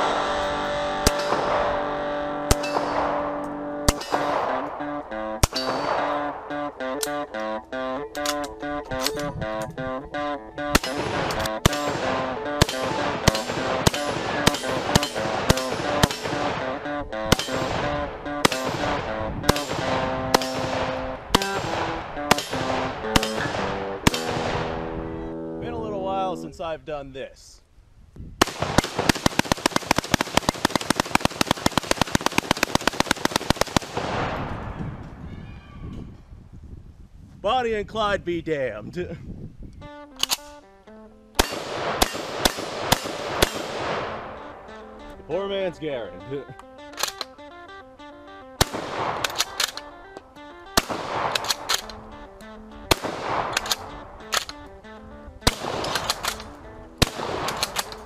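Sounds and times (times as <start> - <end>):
loud gunshots: 0.0 - 6.7, 10.7 - 24.9, 28.4 - 34.7, 41.4 - 44.6, 48.6 - 49.8, 50.8 - 51.9, 52.9 - 54.5, 55.5 - 56.4, 57.0 - 58.0
background music with melody: 0.0 - 26.6, 39.7 - 58.0
sharp cracks: 0.9 - 9.3, 10.6 - 25.0, 28.4 - 34.8, 41.4 - 45.2, 46.6 - 47.5, 48.6 - 58.0
automatic gunfire: 1.0 - 7.2, 10.6 - 25.0, 28.4 - 34.6, 41.4 - 44.7, 48.6 - 50.1, 50.7 - 52.1, 52.9 - 54.7, 55.5 - 58.0.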